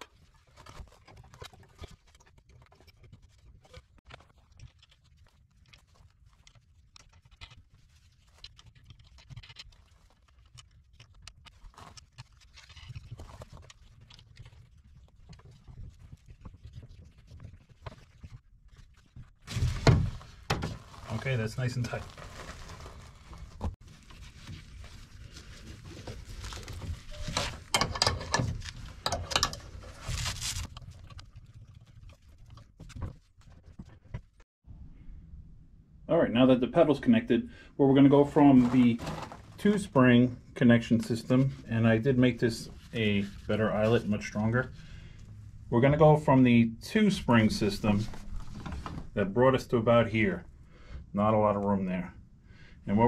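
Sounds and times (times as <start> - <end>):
clicks and knocks of hardware: 27.2 - 29.7.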